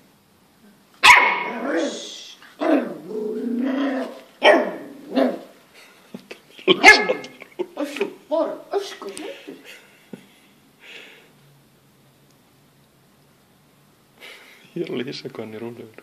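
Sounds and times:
puppy barking: 1.0 - 2.0, 4.0 - 5.5, 6.7 - 7.3.

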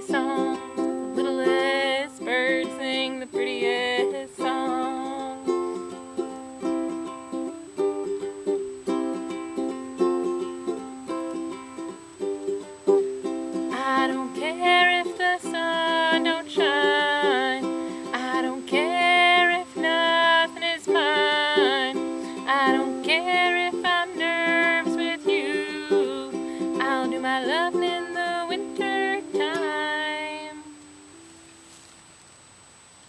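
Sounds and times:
high wordless vocal melody: 0.0 - 6.1, 13.2 - 30.9
ukulele playing: 0.0 - 31.9.

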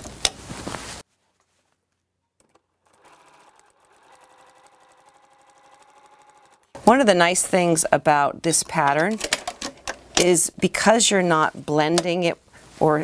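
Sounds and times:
sewing machine stitching: 2.4 - 6.8.

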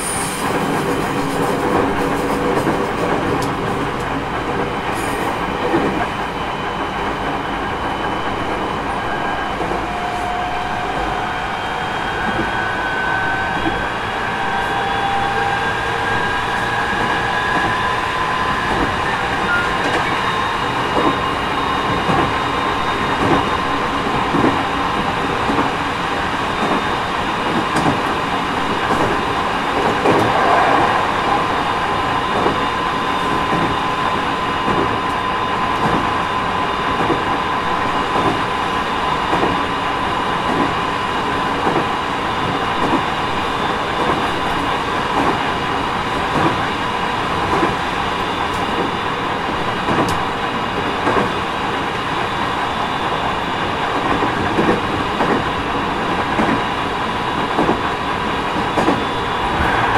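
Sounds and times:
rail joint clicks: 0.0 - 7.4, 26.6 - 31.5, 49.8 - 51.3, 53.9 - 55.5, 57.4 - 57.9, 58.5 - 59.9
train wheels rumbling on rails: 0.0 - 59.9.

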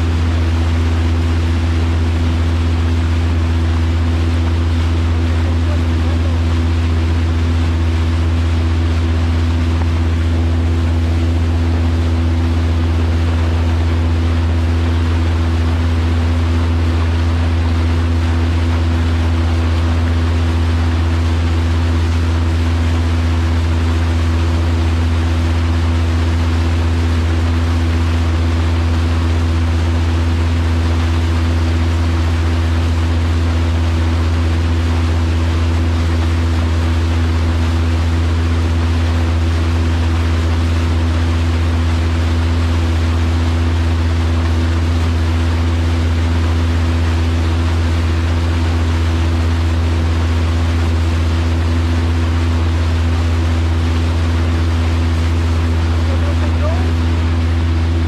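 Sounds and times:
boat motor droning: 0.0 - 58.0
water rushing along hull: 0.0 - 58.0.

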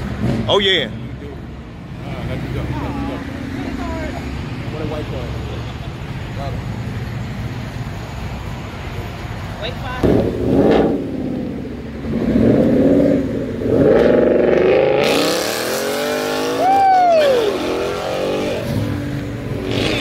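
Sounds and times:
car engine revving and accelerating: 10.1 - 20.0.

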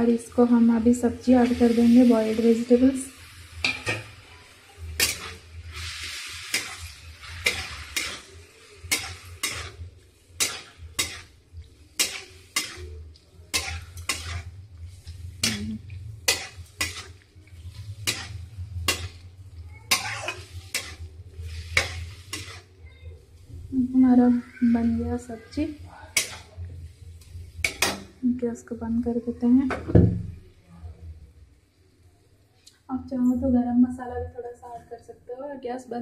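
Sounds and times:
metal spatula scraping a pan: 0.0 - 28.2
masala sizzling: 0.0 - 36.0.

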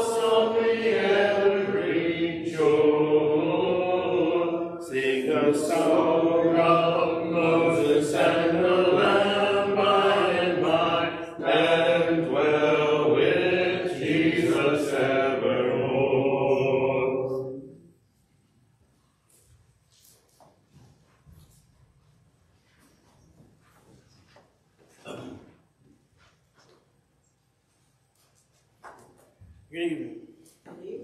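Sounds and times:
congregation singing a hymn: 0.0 - 17.8.

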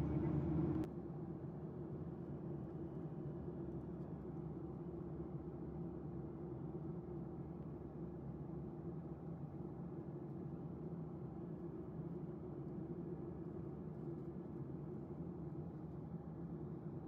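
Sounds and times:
jet cabin drone: 0.0 - 0.9.

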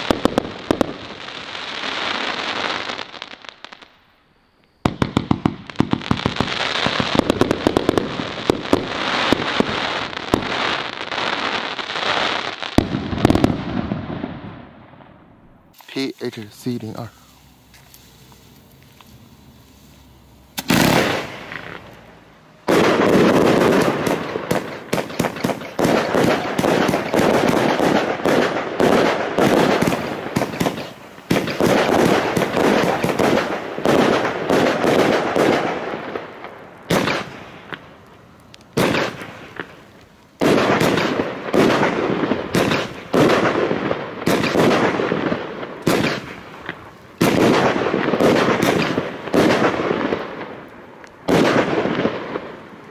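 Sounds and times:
fireworks launching and bursting: 0.0 - 52.9.

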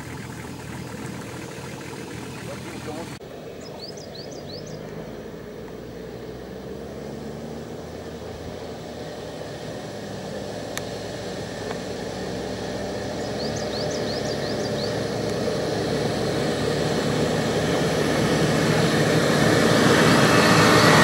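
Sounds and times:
small bird chirping: 0.6 - 5.0, 13.1 - 15.1.

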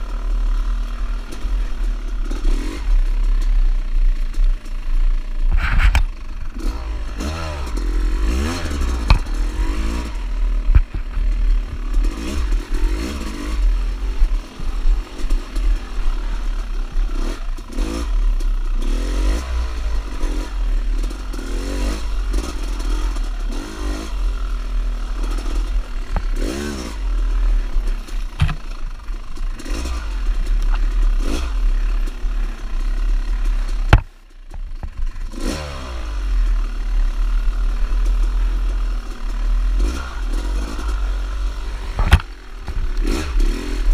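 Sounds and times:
dirt bike engine revving: 0.0 - 3.4, 5.2 - 34.1, 34.8 - 43.9
heavy low rumble: 0.0 - 18.8.

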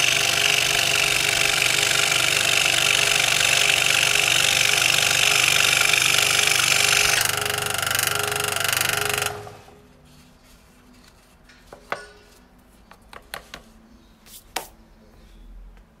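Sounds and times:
scroll saw cutting wood: 0.0 - 9.8.

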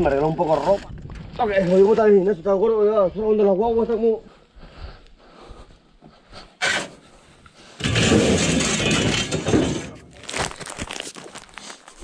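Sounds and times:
paper sack scraping rustle: 7.9 - 12.0.

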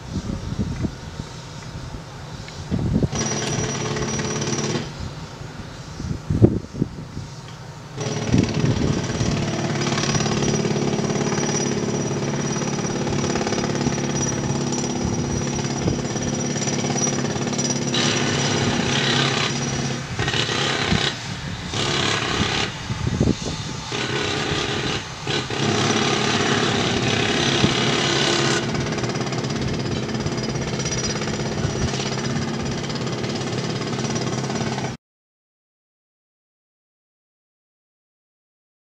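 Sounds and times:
pneumatic hammers on rock: 3.1 - 5.0, 8.0 - 22.8, 23.9 - 35.0.

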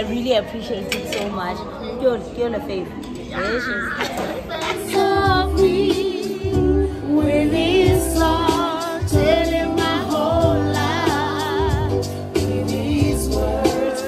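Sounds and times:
woman singing with vibrato: 4.6 - 14.0
electric keyboard chords and bass: 5.0 - 14.0.

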